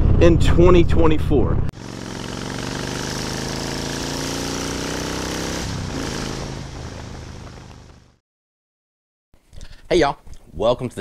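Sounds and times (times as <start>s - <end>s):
motorcycle engine revving: 1.8s - 8.2s.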